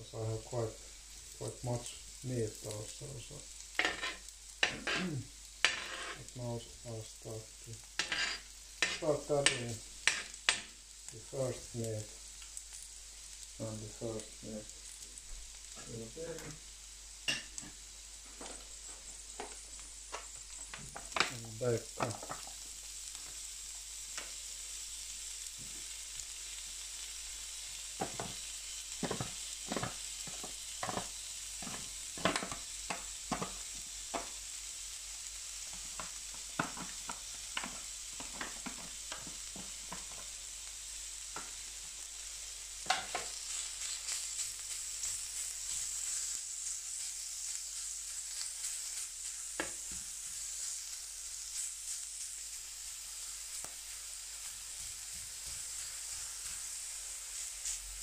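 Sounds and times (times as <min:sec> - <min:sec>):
meat sizzling in oil: 0:00.0 - 0:58.0
taps and clicks on pan: 0:08.8 - 0:10.7, 0:28.0 - 0:28.4, 0:29.0 - 0:34.4, 0:35.7 - 0:40.3, 0:42.8 - 0:43.3.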